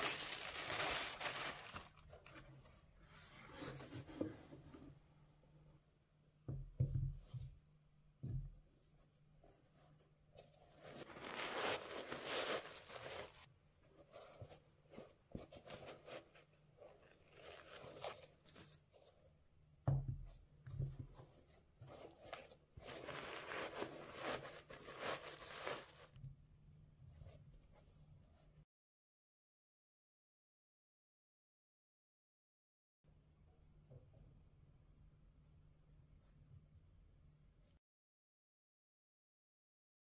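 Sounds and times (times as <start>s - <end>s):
rustling of shoe material: 0.0s - 2.5s, 10.4s - 19.3s, 21.0s - 26.2s.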